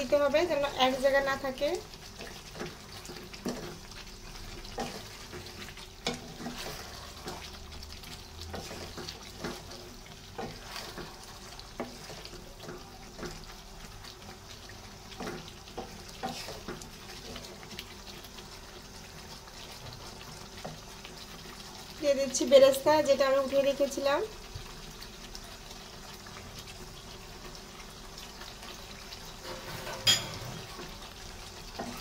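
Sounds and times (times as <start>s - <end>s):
gravy simmering: 0.0s - 32.0s
wooden spatula scraping pan: 4.6s - 7.6s, 8.4s - 13.3s, 15.2s - 17.6s, 29.3s - 31.0s.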